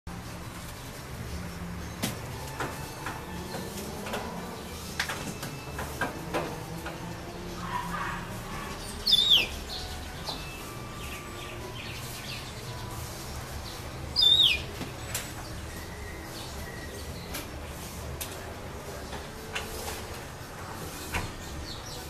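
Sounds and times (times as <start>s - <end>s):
canary whistled calls: 8.8s - 9.8s, 14.2s - 14.7s.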